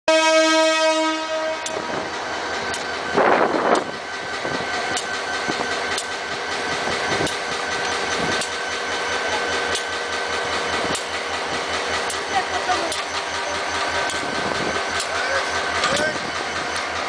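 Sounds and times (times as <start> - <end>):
train horn blast: 0.1 - 2.0
locomotive engine running: 0.1 - 17.0
sharp metallic click: 9.7 - 10.0, 15.8 - 16.2.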